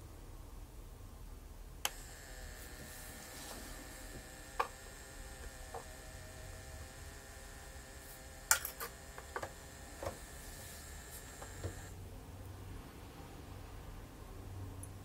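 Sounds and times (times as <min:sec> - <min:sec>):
faint mains hum: 0:00.0 - 0:15.0
thin high whine: 0:01.9 - 0:12.0.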